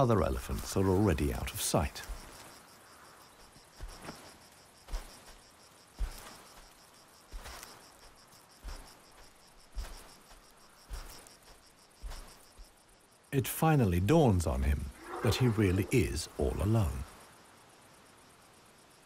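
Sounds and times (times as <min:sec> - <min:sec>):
crickets chirping: 0:00.0 - 0:19.0
elephant footfalls: 0:02.0 - 0:02.6, 0:03.4 - 0:12.8.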